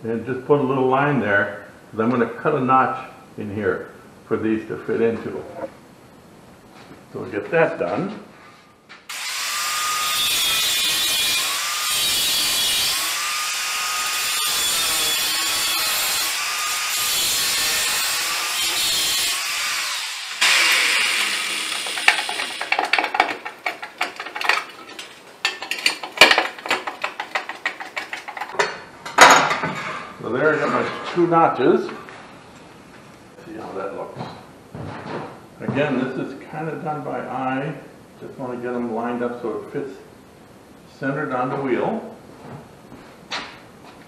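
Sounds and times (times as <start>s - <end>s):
power tool cutting metal: 9.1s - 23.8s
metallic knocks and scrapes: 21.7s - 31.2s.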